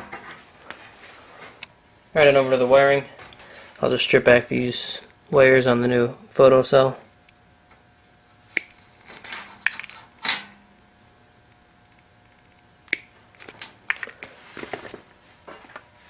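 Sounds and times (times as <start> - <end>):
insulation scraping off wire: 8.6 - 10.5
wire strippers clicking: 11.6 - 14.3.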